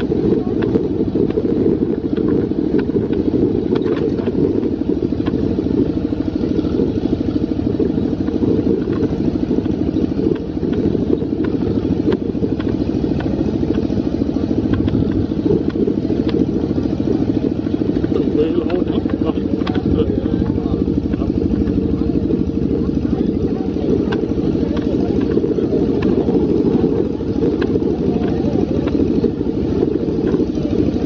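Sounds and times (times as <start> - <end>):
tractor engine chugging: 0.0 - 31.0
trailer knocks and rattles: 14.6 - 16.7.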